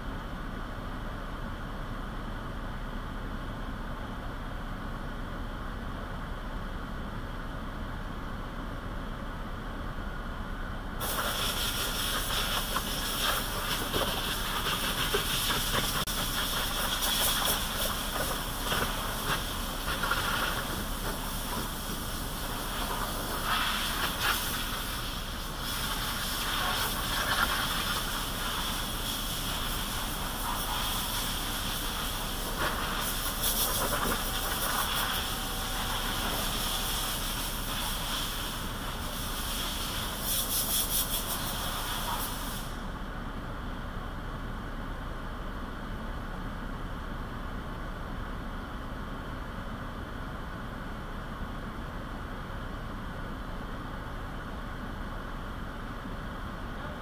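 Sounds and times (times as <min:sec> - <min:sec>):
hissing spray: 0:11.0 - 0:42.8.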